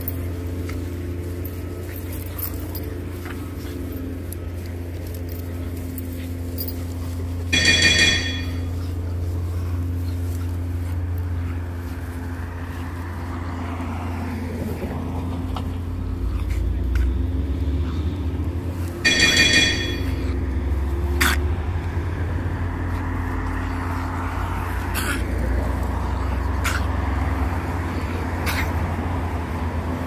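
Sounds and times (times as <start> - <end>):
steady low hum: 0.0 - 30.0
bright chime: 19.0 - 20.3
dogs grunting and growling: 20.2 - 30.0.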